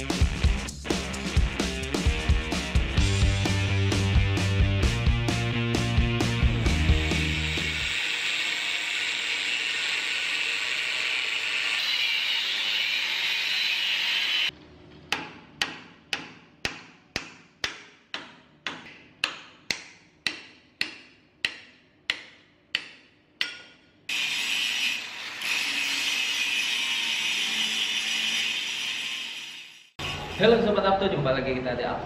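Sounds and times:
angle grinder grinding steel: 6.4 - 14.5, 24.1 - 30.9
hammer striking steel: 15.1 - 24.8.

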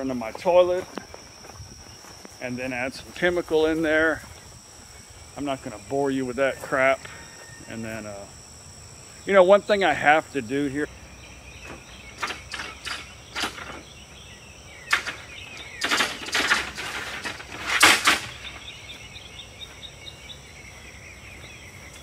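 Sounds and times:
rattling scrapes: 15.8 - 18.4.

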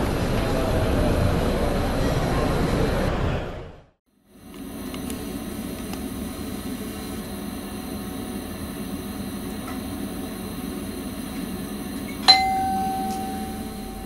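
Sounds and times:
train cab hum and rumble: 4.3 - 14.0.

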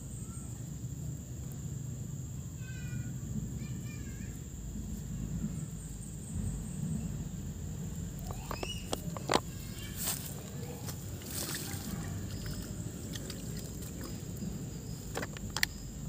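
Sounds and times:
steady low rumble: 0.7 - 16.0
bird calling: 8.2 - 15.9.

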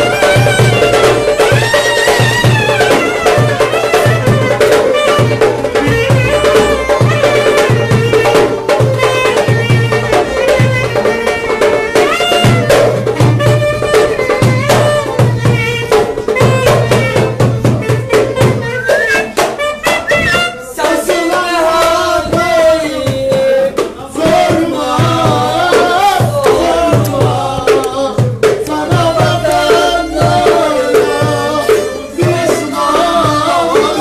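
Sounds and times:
clarinet and violin folk tune: 0.0 - 20.7.

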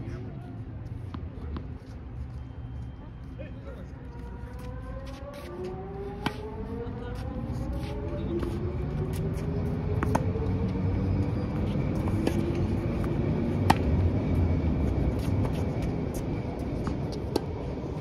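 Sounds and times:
low rumble of road traffic: 0.0 - 18.0
tennis balls struck by rackets: 6.2 - 6.4, 13.6 - 14.0.

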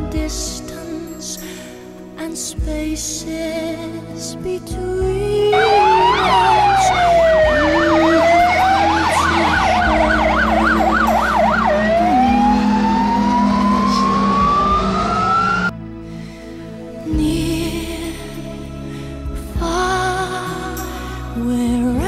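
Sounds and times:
fire engine siren: 5.5 - 15.7
low vehicle rumble: 5.5 - 15.7.

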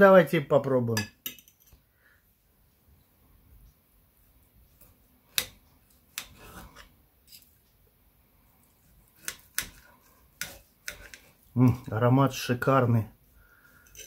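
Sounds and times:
cutlery clicking on plate: 1.0 - 1.8
knife scraping on plate: 6.1 - 7.6, 9.1 - 11.9, 13.8 - 14.0.

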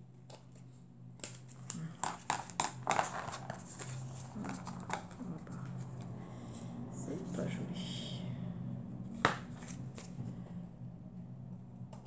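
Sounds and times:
paper rustling and tapping: 1.2 - 5.2.

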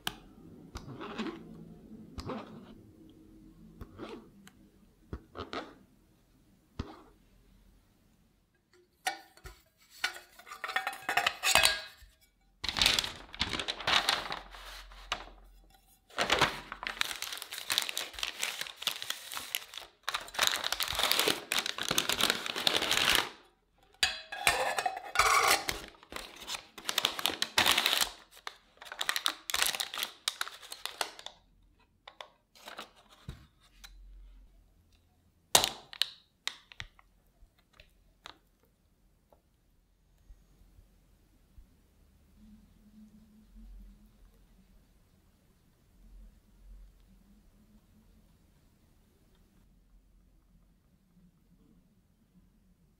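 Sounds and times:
parchment paper crinkling: 12.6 - 23.4, 25.4 - 31.4.

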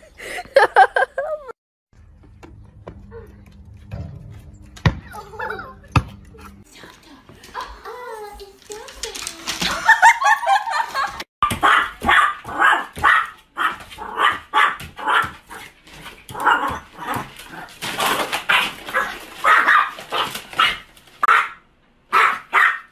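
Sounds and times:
small dog barking: 11.6 - 15.4, 18.9 - 22.9.

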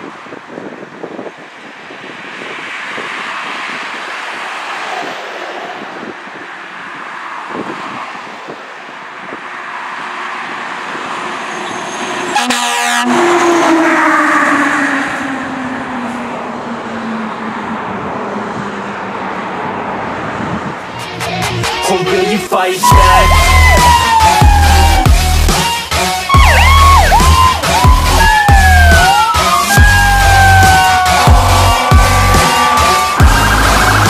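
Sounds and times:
passing traffic: 0.0 - 34.0
air horn blast: 12.3 - 13.8, 22.8 - 25.2, 29.4 - 34.0
siren sliding down in pitch: 22.8 - 25.5, 26.3 - 34.0.

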